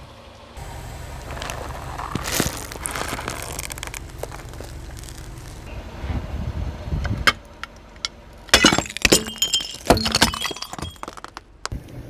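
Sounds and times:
tyre crushing brittle objects: 1.3s - 5.7s, 8.5s - 11.7s.

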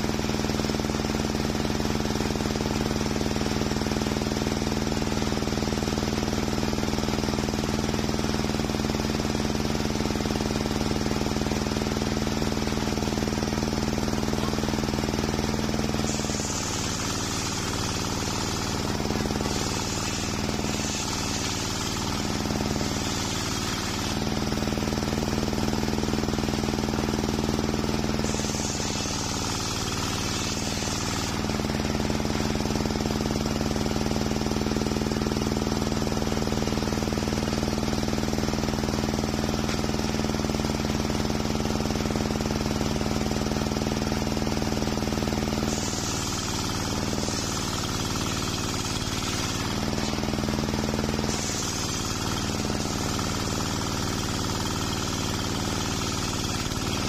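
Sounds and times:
table saw humming: 12.6s - 33.7s, 45.3s - 57.0s
saw blade hissing through wood: 12.6s - 35.2s, 44.3s - 57.0s.

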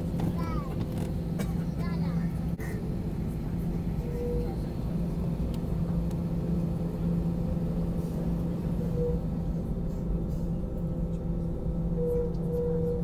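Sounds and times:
idling jet engines hum: 0.0s - 13.0s
wheels rumbling on taxiway: 0.0s - 13.0s.

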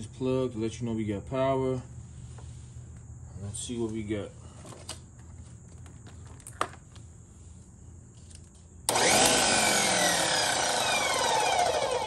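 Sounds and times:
pressure washer motor and pump: 8.9s - 12.0s.

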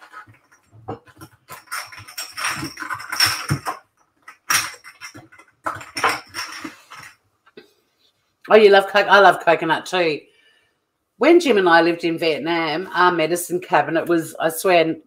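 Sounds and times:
kitchen utensils clinking and knocking: 0.0s - 7.2s.

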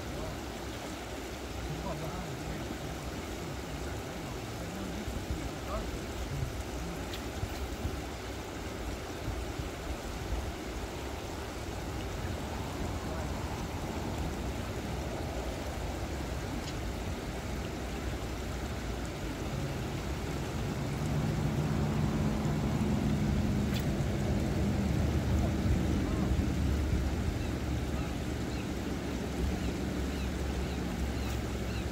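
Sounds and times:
low steady hum: 0.0s - 31.9s
water rushing over spillway: 0.0s - 31.9s
wind rumble on microphone: 9.2s - 31.9s.

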